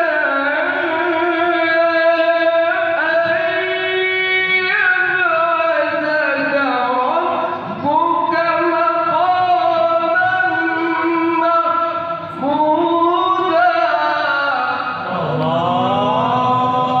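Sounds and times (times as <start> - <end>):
man chanting over loudspeaker: 0.0 - 17.0.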